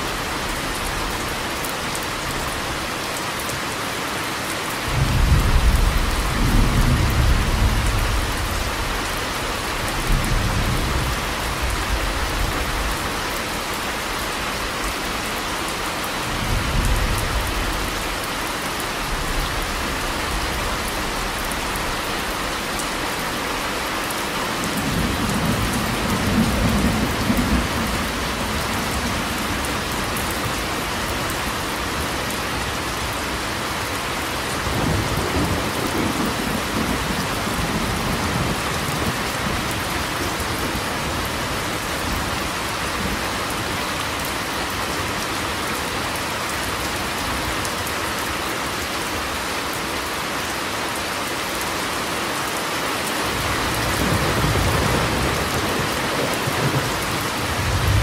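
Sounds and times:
steady rain falling: 0.0s - 58.0s
thunder rumbling: 53.8s - 58.0s.

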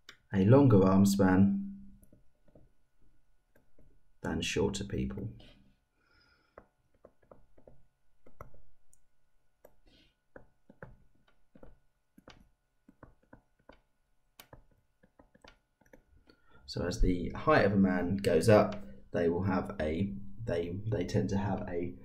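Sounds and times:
stylus tapping on tablet screen: 2.0s - 4.2s, 6.4s - 16.3s.

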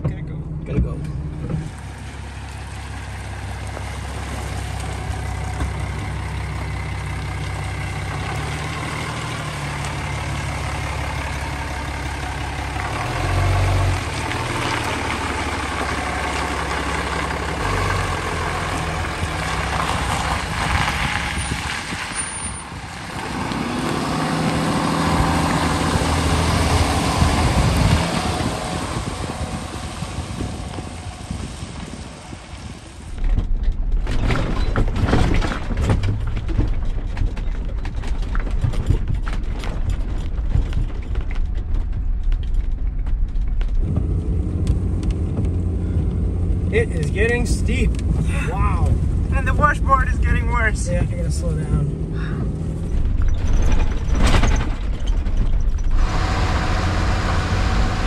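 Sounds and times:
pickup truck engine driving past: 1.2s - 33.1s, 55.7s - 58.0s
tyres on wet gravel: 1.6s - 58.0s.

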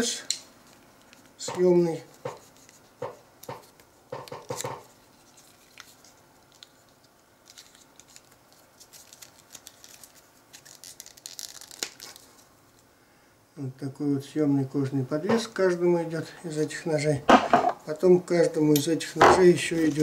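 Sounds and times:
sharp knocks: 17.3s - 17.8s.

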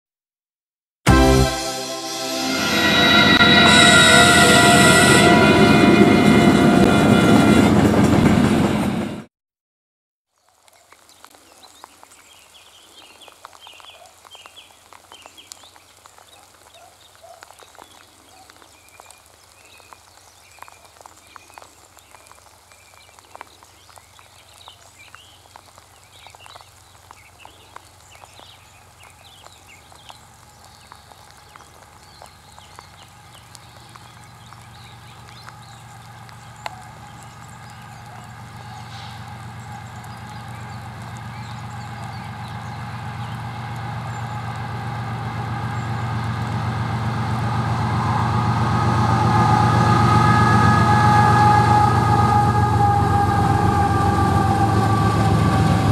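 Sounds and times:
diesel locomotive rumble: 1.1s - 9.3s, 31.8s - 55.9s
small birds chirping: 10.3s - 43.5s.

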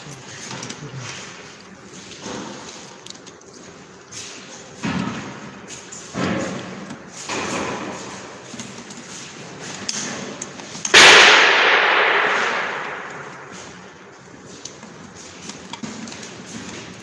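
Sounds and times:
knocks and rustling of plastic parts: 0.0s - 17.0s
loud crash: 10.9s - 13.6s.

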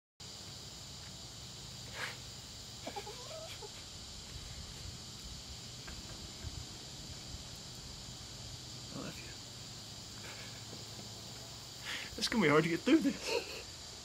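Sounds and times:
high insect drone: 0.2s - 14.0s
short wavering calls: 1.9s - 4.0s.

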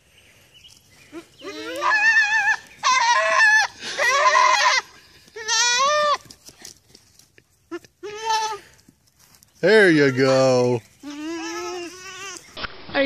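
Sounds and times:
goat kid bleating: 1.1s - 6.4s, 7.7s - 8.8s, 11.0s - 12.5s.

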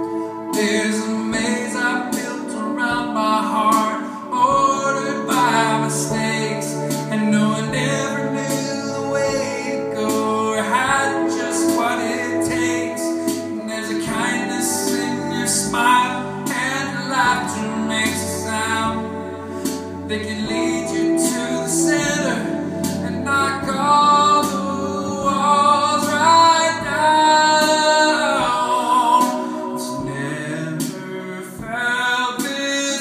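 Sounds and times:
electric guitar strummed chords: 0.0s - 32.0s
man singing: 0.0s - 33.0s.

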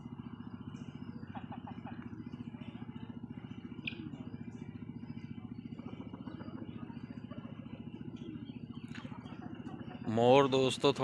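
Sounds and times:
small engine running: 0.0s - 11.0s
faint high bird chirps: 2.3s - 10.2s.

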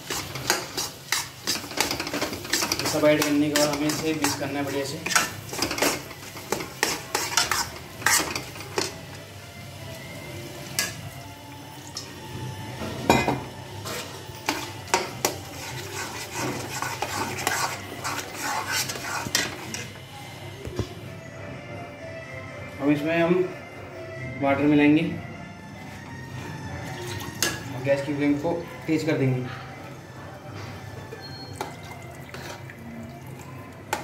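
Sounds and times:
light sizzle of frying sauce: 0.0s - 12.3s, 13.6s - 20.0s.

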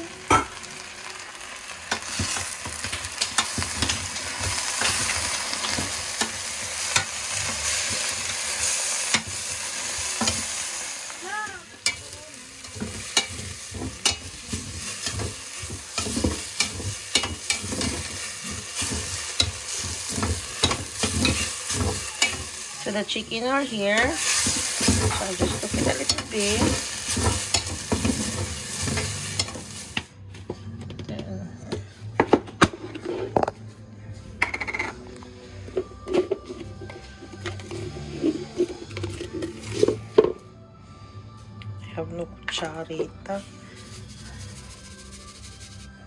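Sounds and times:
chicken and onions sizzling: 0.0s - 30.2s, 43.3s - 46.0s
spoon clacking against pot: 11.8s - 12.0s, 12.6s - 22.6s, 24.0s - 29.6s
metal spoon scraping pot: 12.6s - 22.5s.

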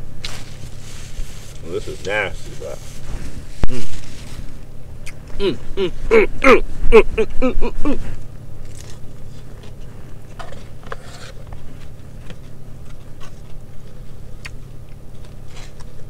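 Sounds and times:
steady low hum: 0.0s - 16.0s
chewing and crunching: 8.0s - 16.0s.

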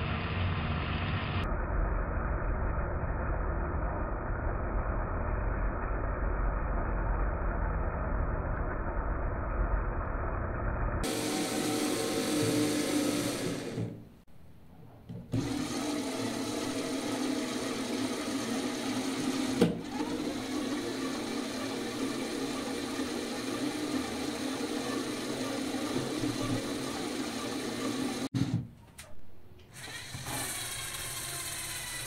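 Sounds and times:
toy motors whirring: 29.7s - 32.0s.

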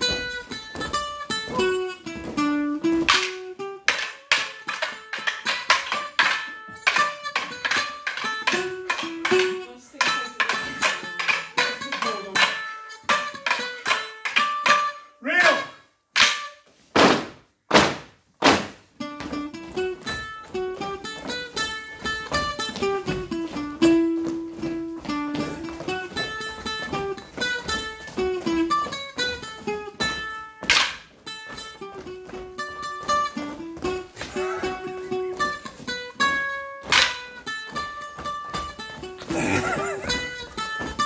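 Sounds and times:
wooden sticks clashing: 0.0s - 18.7s, 30.0s - 31.6s, 32.2s - 41.0s
folk dance tune: 0.0s - 41.0s.

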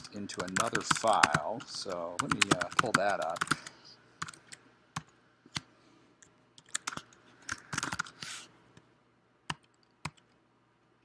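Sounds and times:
computer keyboard typing: 0.0s - 5.7s, 6.6s - 8.2s, 9.5s - 10.4s.

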